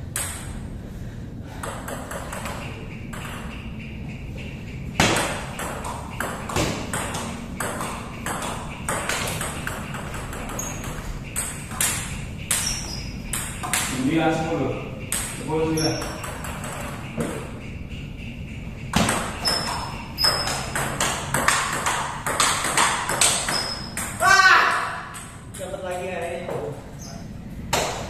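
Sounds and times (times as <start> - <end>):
table tennis ball clicking: 18.9 - 26.3.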